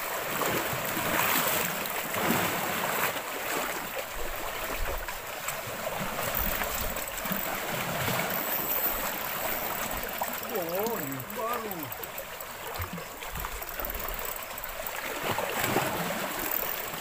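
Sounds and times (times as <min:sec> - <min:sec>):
water lapping on rocky shore: 0:00.0 - 0:17.0.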